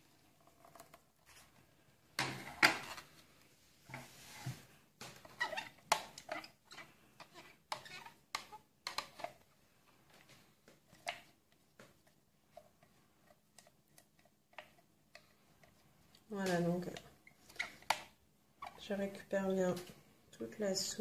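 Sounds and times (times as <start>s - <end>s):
spatula scraping plastic blender jar: 5.2s - 9.4s.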